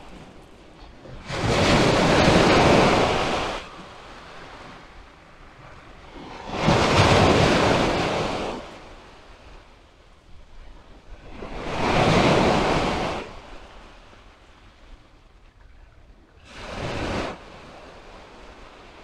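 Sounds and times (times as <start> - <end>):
surf wash: 0.0 - 9.8, 10.5 - 14.5, 16.4 - 19.0.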